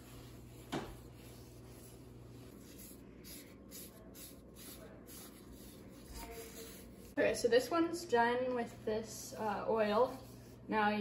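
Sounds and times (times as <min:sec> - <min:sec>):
paper towel wiping strokes: 0:00.0 - 0:07.2.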